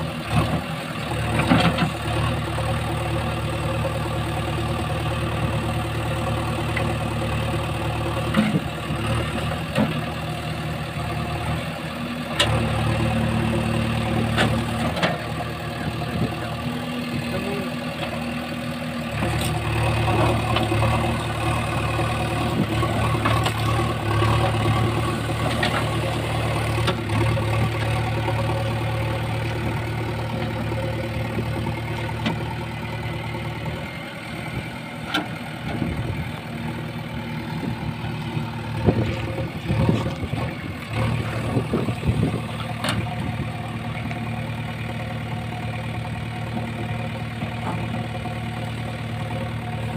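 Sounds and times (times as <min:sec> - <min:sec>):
diesel engine running: 0:00.0 - 0:49.9.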